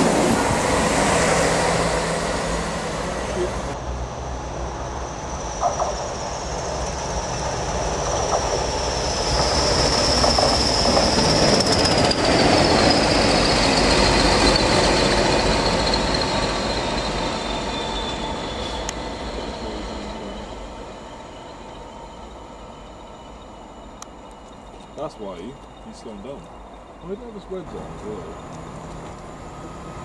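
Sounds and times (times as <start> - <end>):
diesel locomotives passing: 0.0 - 30.0
high whistle sliding down: 8.2 - 26.4.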